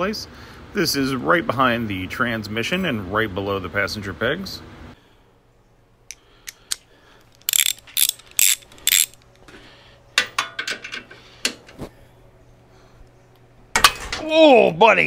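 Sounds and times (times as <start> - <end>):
hand ratchet clicking: 7.4 - 9.2.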